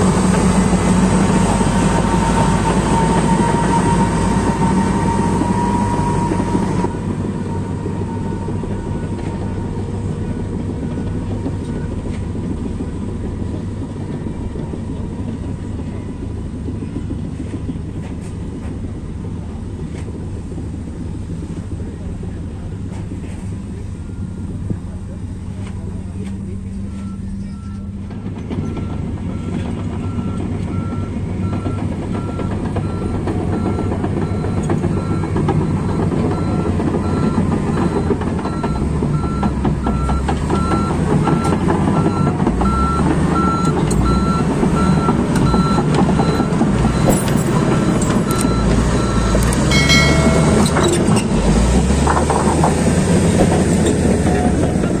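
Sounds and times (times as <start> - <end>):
diesel engine running: 0.0 - 55.0
reversing alarm beeps: 28.6 - 51.3.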